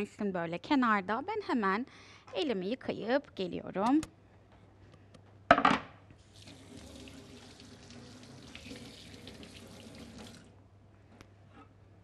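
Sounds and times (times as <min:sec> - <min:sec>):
kitchen tap running: 0:06.2 - 0:10.5
hands being washed: 0:06.3 - 0:10.5.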